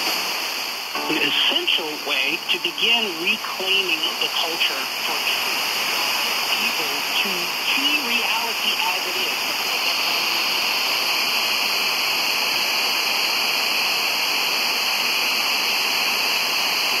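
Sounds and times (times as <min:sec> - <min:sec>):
radio static hiss: 0:00.0 - 0:17.0
radio speech: 0:01.0 - 0:10.6.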